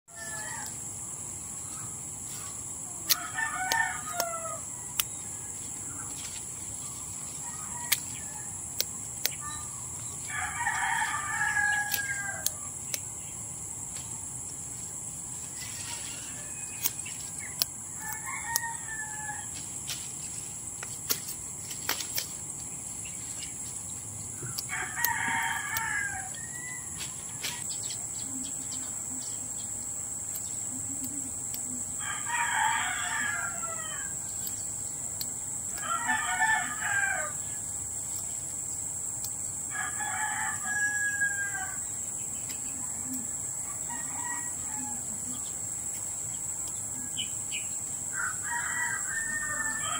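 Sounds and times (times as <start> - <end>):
rooster crowing: 0.1 - 0.8, 3.1 - 5.0, 7.4 - 8.6, 10.2 - 12.6, 15.7 - 17.0, 18.0 - 19.5, 24.5 - 27.6, 32.0 - 34.2, 35.7 - 37.4, 39.7 - 41.8, 43.7 - 45.3, 48.1 - 49.9
high insect drone: 0.1 - 49.9.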